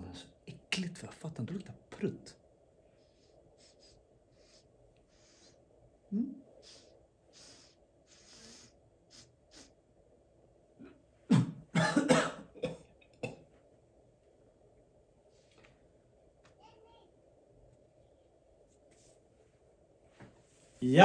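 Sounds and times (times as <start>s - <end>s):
man sniffing: 3.0s - 9.8s
man coughing: 11.3s - 13.4s.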